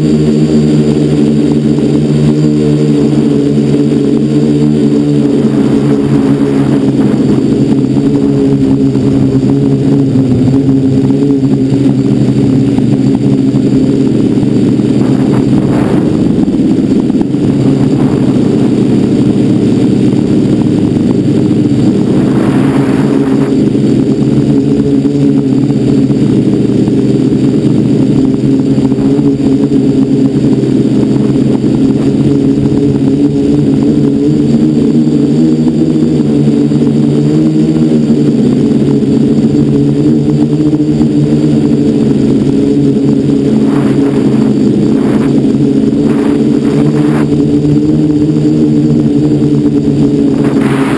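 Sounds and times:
quadcopter motors buzzing: 0:00.0 - 0:50.9.

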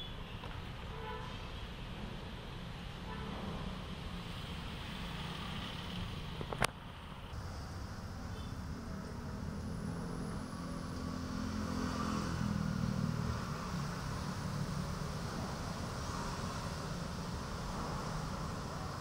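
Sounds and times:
vehicle engine humming: 0:03.9 - 0:19.0.

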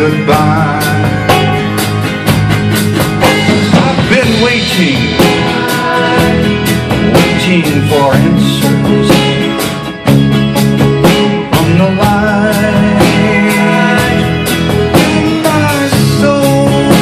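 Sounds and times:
man singing: 0:00.0 - 0:01.6, 0:03.6 - 0:09.6, 0:11.3 - 0:17.0
bass: 0:00.0 - 0:17.0
drums beating: 0:00.0 - 0:17.0
guitar: 0:00.0 - 0:17.0.

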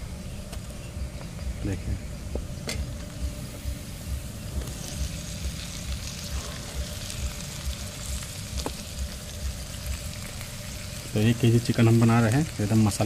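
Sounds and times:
low pulsing rumble: 0:00.0 - 0:12.6
chicken sizzling in hot oil: 0:03.3 - 0:13.0.

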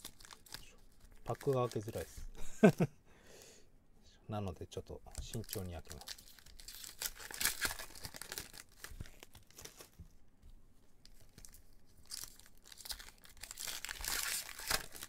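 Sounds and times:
foil pack tearing and crinkling: 0:00.0 - 0:02.1, 0:05.2 - 0:10.0, 0:11.2 - 0:15.0.

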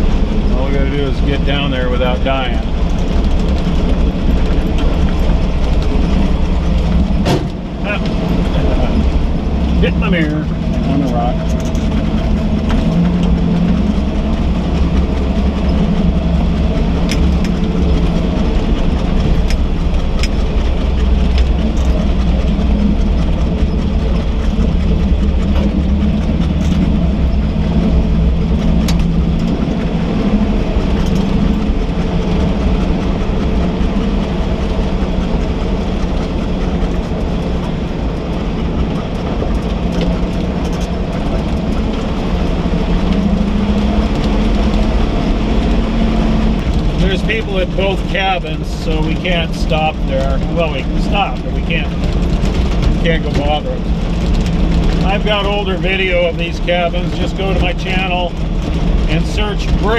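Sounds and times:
sharp clicks and rattles: 0:00.0 - 0:59.9
truck engine running at low speed: 0:00.0 - 0:59.9.

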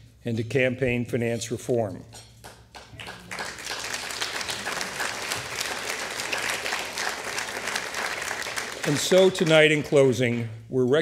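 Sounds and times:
audience applauding: 0:02.8 - 0:10.4.

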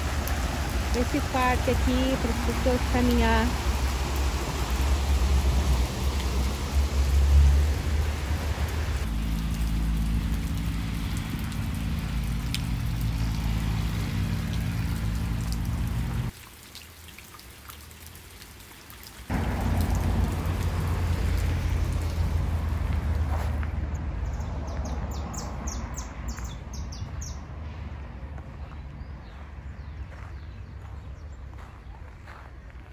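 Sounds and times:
stream rushing over rocks: 0:00.0 - 0:23.3.

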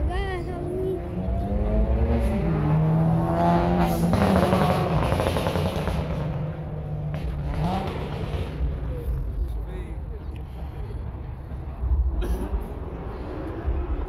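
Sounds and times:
car engine revving: 0:00.9 - 0:09.4.

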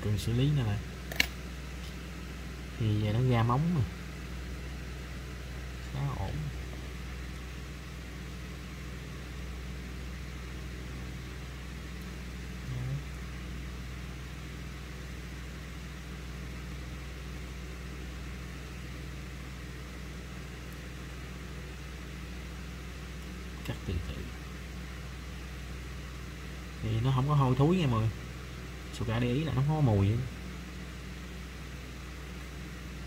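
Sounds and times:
machine hum with hiss: 0:00.0 - 0:33.0.

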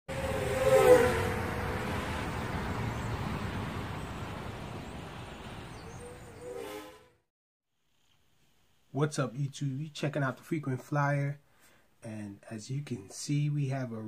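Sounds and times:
rushing noise: 0:00.1 - 0:07.1
pass-by with falling pitch: 0:00.1 - 0:07.2.

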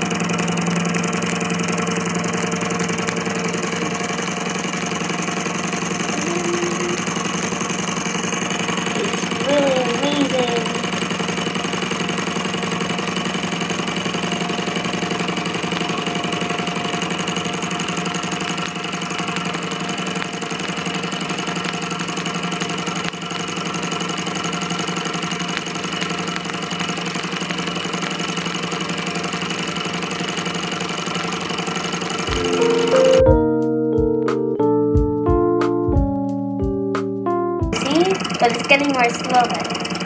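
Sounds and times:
small engine mechanical clatter: 0:00.0 - 0:33.0, 0:37.7 - 0:40.0.

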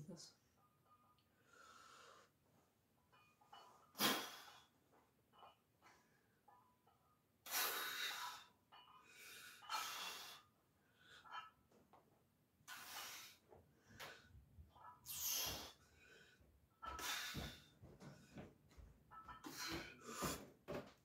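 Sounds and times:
man breathing hard: 0:07.5 - 0:11.3, 0:15.1 - 0:18.4, 0:19.4 - 0:20.6.

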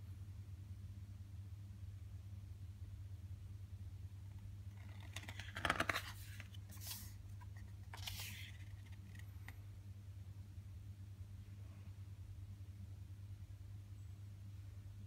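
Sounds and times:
paper page rustling: 0:04.7 - 0:09.6.

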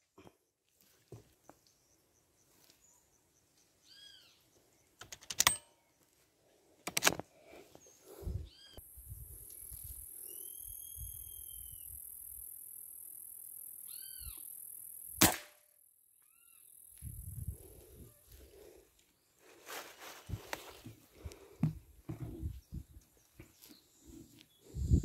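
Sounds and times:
bird calls: 0:01.4 - 0:05.0, 0:07.7 - 0:08.8.

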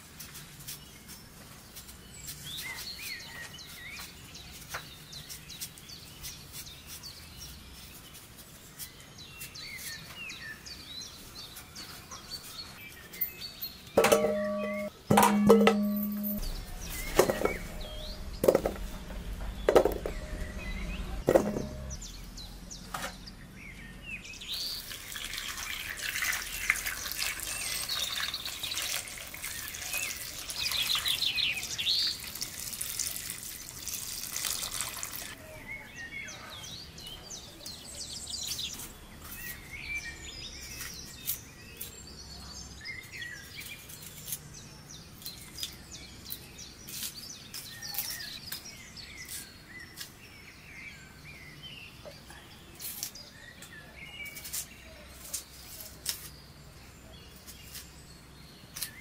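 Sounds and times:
small birds chirping: 0:00.0 - 0:59.0
sharp knocks: 0:14.0 - 0:22.0.

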